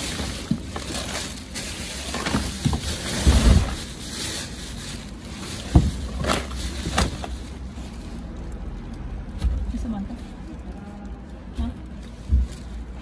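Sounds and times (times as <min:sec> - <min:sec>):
plastic bin bags rustling: 0:00.0 - 0:13.0
dull thumps and knocks: 0:11.6 - 0:12.8.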